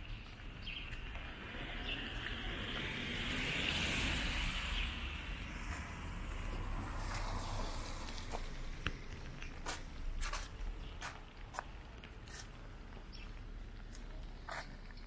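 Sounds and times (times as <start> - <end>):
tyre hiss on wet road: 2.1 - 8.7.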